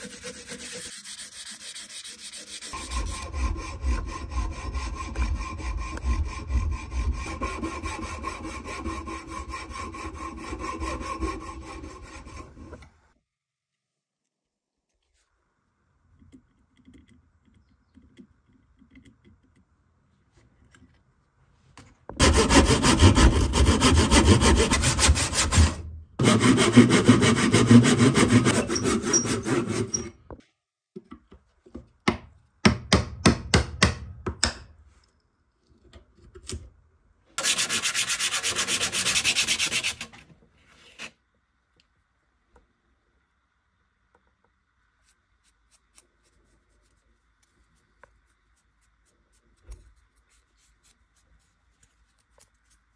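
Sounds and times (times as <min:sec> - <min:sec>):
wood rubbing on sandpaper: 0:00.0 - 0:12.7, 0:22.2 - 0:30.0, 0:37.4 - 0:40.1, 0:45.0 - 0:52.9
handsaw cutting wood: 0:00.0 - 0:12.8, 0:22.2 - 0:30.1, 0:37.4 - 0:40.1
pencil scratching on wood: 0:00.0 - 0:12.8, 0:22.2 - 0:30.1.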